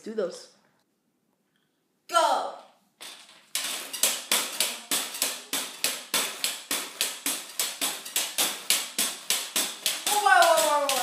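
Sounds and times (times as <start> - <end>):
pogo stick bouncing on concrete: 3.0 - 11.0.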